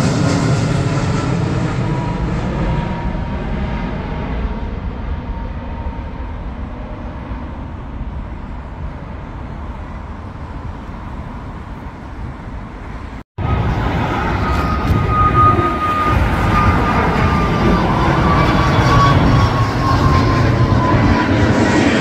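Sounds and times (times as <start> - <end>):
jet airliner passing overhead: 0.0 - 22.0.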